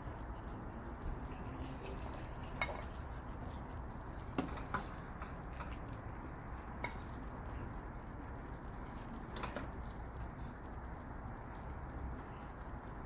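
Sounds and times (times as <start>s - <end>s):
low steady hum: 0.0s - 13.0s.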